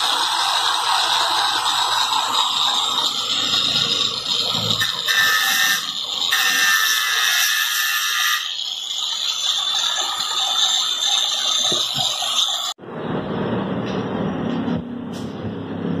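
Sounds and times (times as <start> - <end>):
angle grinder running: 0.0 - 12.6
high-pitched whine: 0.0 - 16.0.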